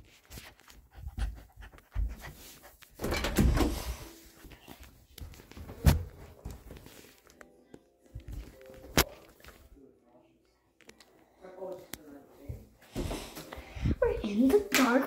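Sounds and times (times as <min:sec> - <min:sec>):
panting breaths: 0:00.2 - 0:03.0.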